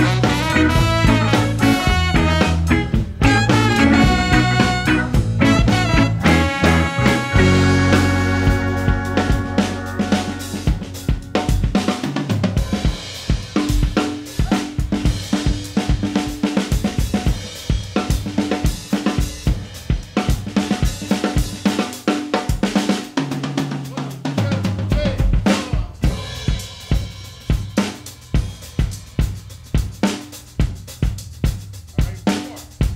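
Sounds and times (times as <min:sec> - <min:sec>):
drum kit solo: 0:00.0 - 0:32.9.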